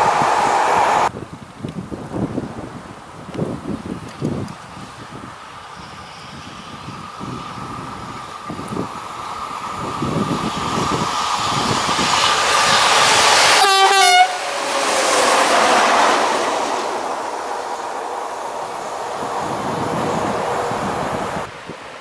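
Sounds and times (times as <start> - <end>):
wheels clattering on rail: 3.4 - 22.0
locomotive horn blast: 13.5 - 16.1.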